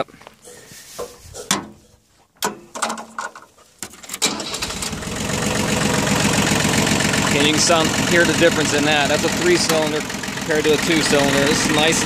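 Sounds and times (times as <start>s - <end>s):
clicks and knocks: 2.4s - 4.2s
diesel engine running: 4.2s - 12.0s.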